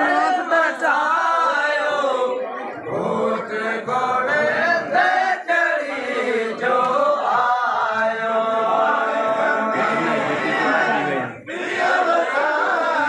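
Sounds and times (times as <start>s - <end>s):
men singing in a chant: 0.0s - 13.0s.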